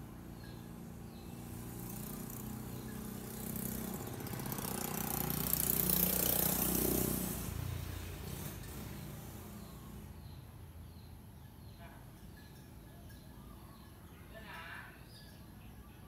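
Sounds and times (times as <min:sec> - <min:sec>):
motor vehicle passing: 0:00.0 - 0:11.0.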